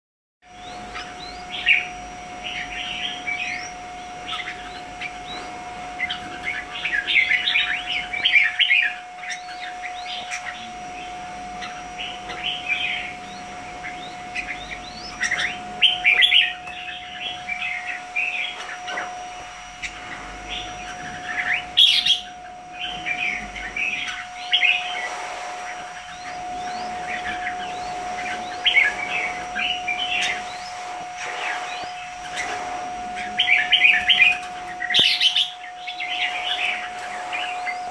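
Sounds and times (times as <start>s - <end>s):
birds chattering and calling: 0.5s - 37.9s
steady thin hum: 0.5s - 37.9s.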